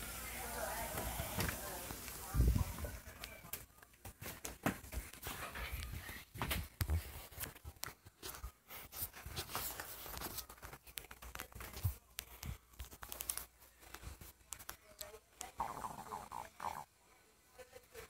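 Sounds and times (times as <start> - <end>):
rustling and crackling: 1.0 - 15.2.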